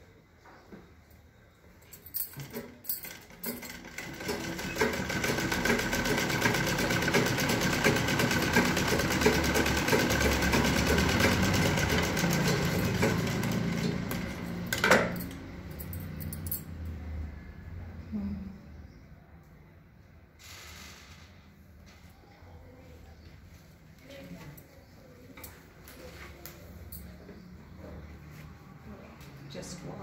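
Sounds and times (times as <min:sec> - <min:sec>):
sewing machine clicks: 0:02.3 - 0:15.2
sewing machine running: 0:02.4 - 0:15.2.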